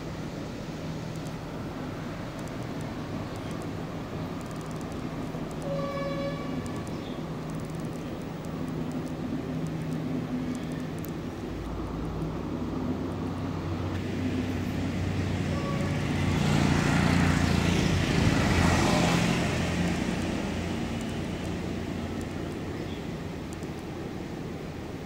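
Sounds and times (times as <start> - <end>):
vehicle passing by: 12.0 - 22.2.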